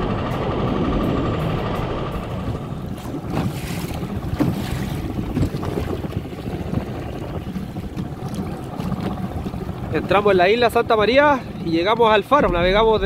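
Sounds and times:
wind buffeting microphone: 0.0s - 13.0s
water splashing against hull: 1.0s - 13.0s
sharp water slaps: 2.9s - 6.2s.

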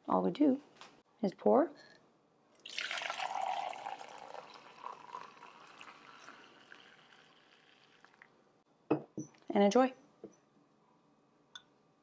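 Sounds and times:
coffee pouring into a mug: 2.6s - 8.3s.

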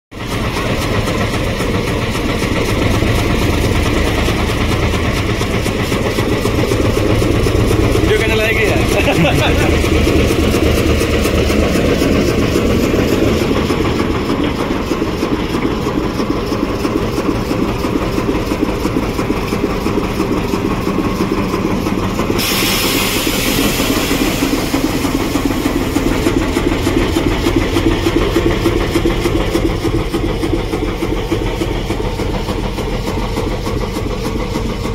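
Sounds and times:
diesel locomotive engine running: 0.1s - 34.9s
loud hiss: 22.4s - 26.2s.

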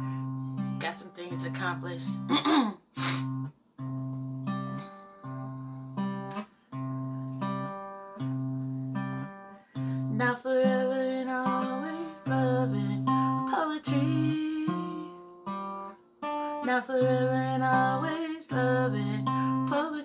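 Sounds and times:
acoustic guitar chords: 0.0s - 20.0s
woman singing or humming: 10.0s - 15.2s, 16.6s - 20.0s.

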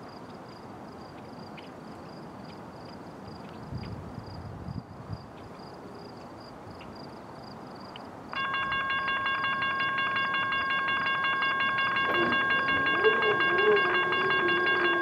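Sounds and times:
locomotive air horn: 9.5s - 15.0s.

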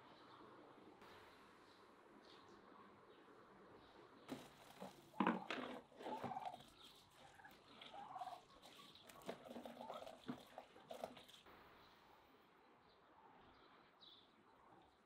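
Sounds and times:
turkeys calling: 4.3s - 11.5s.

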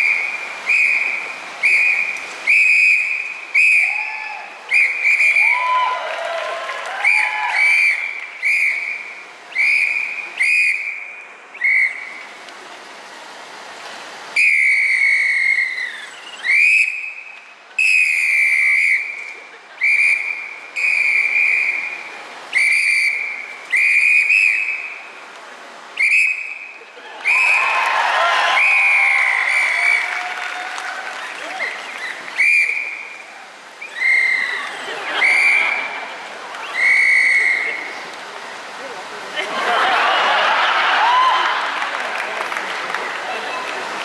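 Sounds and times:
shrill whistle blasts: 0.0s - 5.8s, 7.0s - 12.2s, 14.4s - 25.0s, 26.0s - 27.8s, 28.5s - 30.2s, 31.6s - 35.9s, 36.6s - 37.8s.

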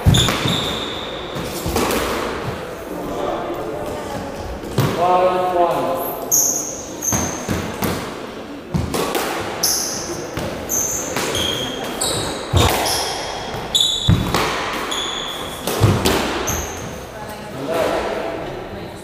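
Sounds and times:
shoes squeaking on wooden floor: 0.0s - 1.8s, 6.1s - 7.8s, 9.6s - 17.1s
squash ball smacking: 0.0s - 2.7s, 7.1s - 16.8s.

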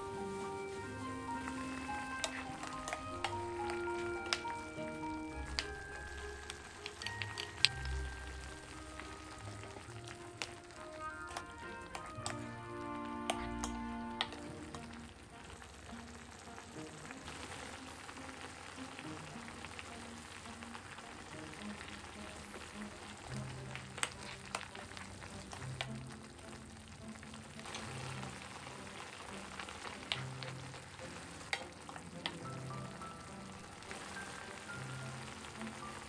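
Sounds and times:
sauce bubbling in a frying pan: 0.0s - 36.0s
wooden spoon clicking on pan: 1.3s - 15.1s, 23.9s - 26.1s, 29.8s - 32.9s.

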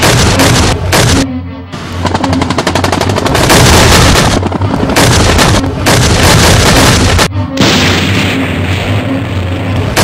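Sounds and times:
artillery and gunfire: 0.0s - 1.2s, 2.0s - 10.0s
shell explosions: 0.0s - 1.2s, 2.3s - 9.0s.

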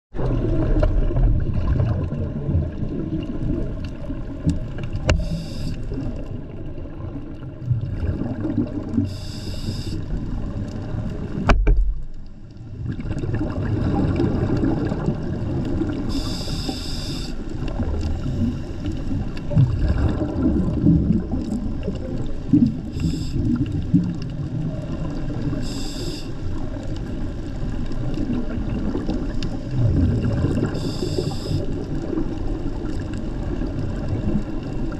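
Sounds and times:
water rumbling against camera housing: 0.1s - 6.3s, 10.2s - 16.3s
short hissing bursts: 5.2s - 5.8s, 9.1s - 10.1s, 16.1s - 17.4s, 22.9s - 23.6s, 25.6s - 26.4s, 30.7s - 31.6s.

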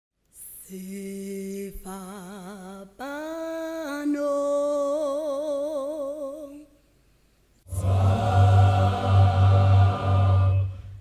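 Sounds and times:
person singing with vibrato: 0.4s - 6.8s, 7.7s - 11.0s
gospel choir singing: 7.7s - 11.0s.

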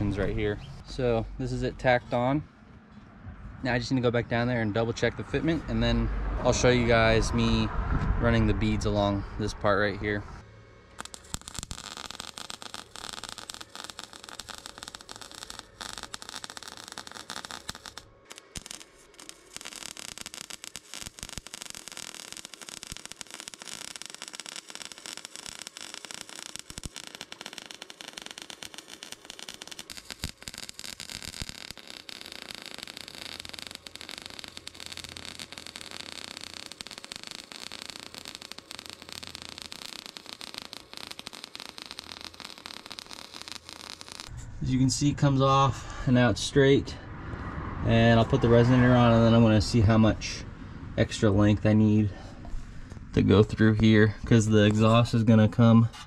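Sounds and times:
welder arc crackling: 0.0s - 2.0s, 10.9s - 45.3s.

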